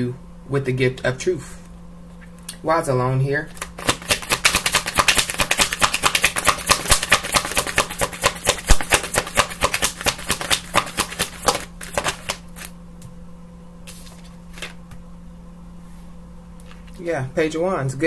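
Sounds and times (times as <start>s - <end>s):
deck of cards being shuffled: 3.5s - 12.8s, 13.8s - 15.0s
cards tapping: 3.6s - 12.7s.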